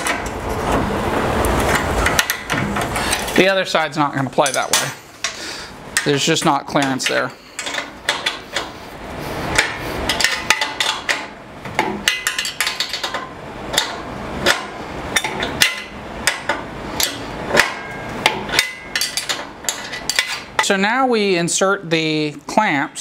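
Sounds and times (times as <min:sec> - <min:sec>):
wrench clicking on metal bolts: 0:06.8 - 0:08.7, 0:09.6 - 0:20.8.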